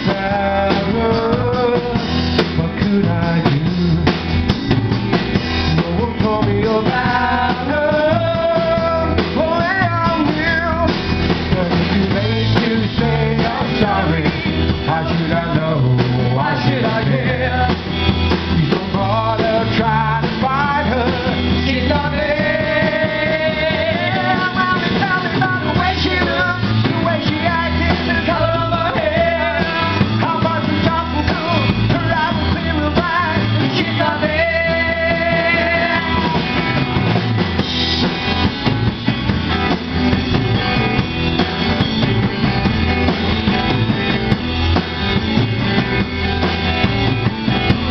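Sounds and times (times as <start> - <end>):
bass guitar: 0.0 - 47.9
drum kit: 0.0 - 47.9
electric guitar: 0.0 - 47.9
person singing: 5.7 - 17.9, 18.5 - 36.8.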